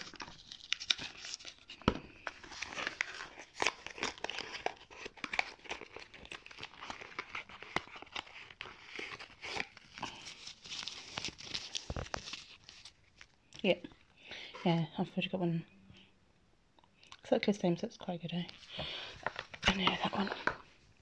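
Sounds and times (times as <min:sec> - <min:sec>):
packaging crinkling and rustling: 0:00.0 - 0:13.4, 0:18.5 - 0:20.8.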